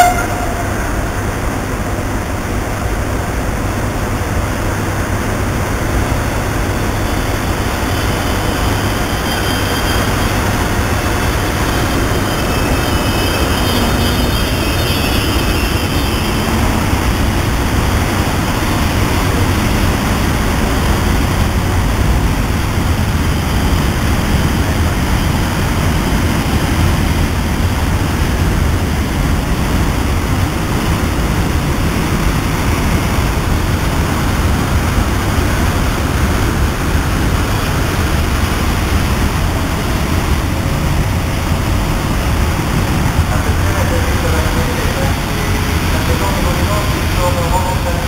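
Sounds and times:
train wheels rumbling on rails: 0:00.0 - 0:48.0.

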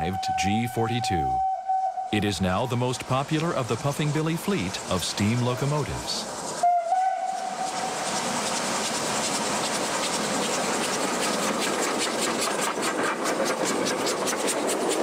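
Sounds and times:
locomotive chuffing beats: 0:00.0 - 0:01.5, 0:02.2 - 0:15.0
train whistle: 0:00.0 - 0:02.2, 0:06.6 - 0:08.0
moving train noise: 0:00.0 - 0:15.0
steam hissing: 0:02.2 - 0:15.0.

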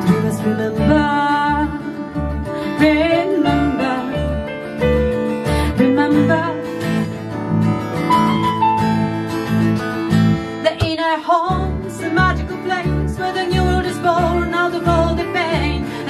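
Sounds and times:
woman singing: 0:00.0 - 0:04.8, 0:05.6 - 0:07.1, 0:10.6 - 0:16.0
strummed acoustic guitar: 0:00.0 - 0:16.0.

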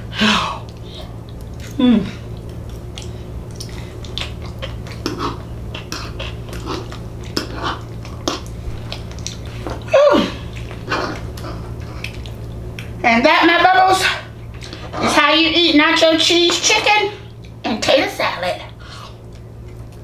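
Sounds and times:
steady low hum: 0:00.0 - 0:20.0
chewing and lip-smacking: 0:00.6 - 0:13.0, 0:19.1 - 0:20.0.

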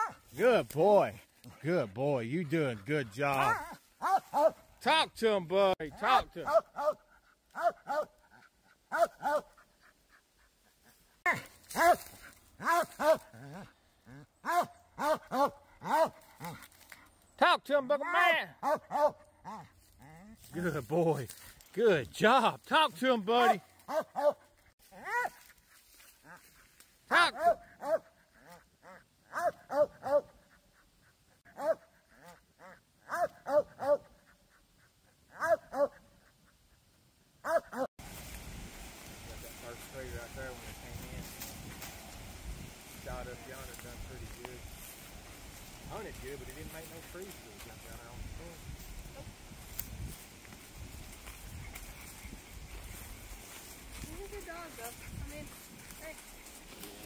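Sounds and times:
dog barking: 0:00.0 - 0:00.2, 0:03.4 - 0:04.6, 0:06.2 - 0:08.2, 0:08.9 - 0:09.6, 0:11.2 - 0:13.7, 0:14.4 - 0:16.6, 0:18.6 - 0:19.7, 0:23.4 - 0:25.4, 0:27.1 - 0:30.6, 0:31.4 - 0:34.4, 0:35.3 - 0:36.3, 0:37.4 - 0:37.9.

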